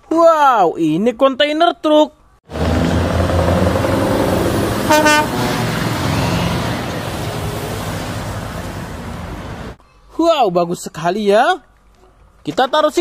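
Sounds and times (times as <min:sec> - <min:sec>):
truck diesel engine passing: 0:02.5 - 0:09.8
truck horn toot: 0:02.6 - 0:08.8.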